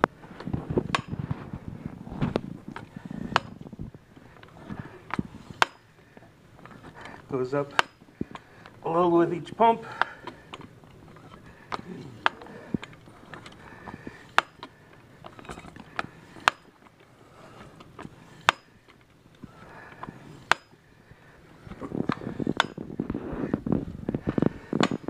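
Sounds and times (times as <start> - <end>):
hand pump metallic clicks: 2.7 - 9.0, 9.7 - 20.8.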